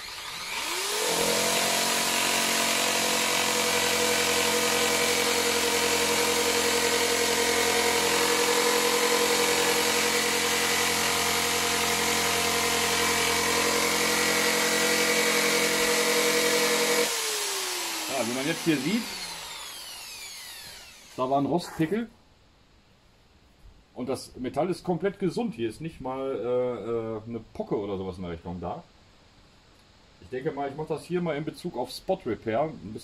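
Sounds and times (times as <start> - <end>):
die grinder high-pitched whine: 0.0 - 21.3.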